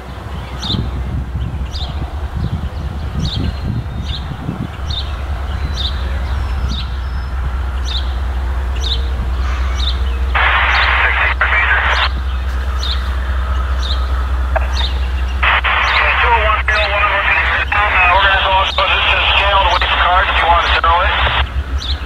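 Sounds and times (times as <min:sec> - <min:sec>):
bird chirping: 0:00.0 - 0:22.0
diesel locomotive rumbling: 0:00.0 - 0:22.0
scanner radio static: 0:10.4 - 0:12.2, 0:14.5 - 0:21.5.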